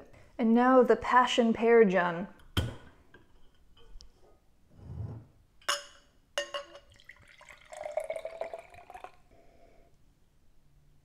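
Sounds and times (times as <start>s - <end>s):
glass clinks: 5.7s - 7.1s
fizzy drink pouring into glass: 6.9s - 9.3s.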